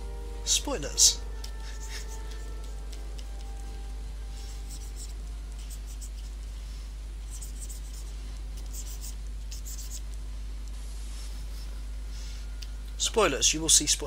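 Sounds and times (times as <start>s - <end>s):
low electrical hum: 0.0s - 14.0s
stylus scratching on tablet: 1.6s - 2.9s, 4.4s - 6.4s, 7.2s - 10.1s.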